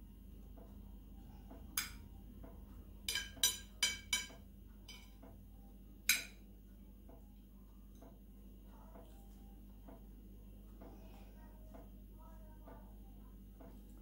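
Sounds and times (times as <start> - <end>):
metal spoon clinking on plate: 3.1 - 5.1.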